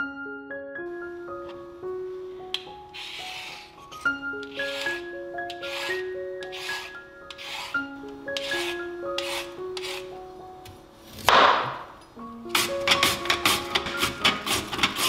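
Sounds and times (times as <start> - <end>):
gentle background music: 0.0 - 15.0
scraping strokes: 2.9 - 10.1, 12.6 - 15.0.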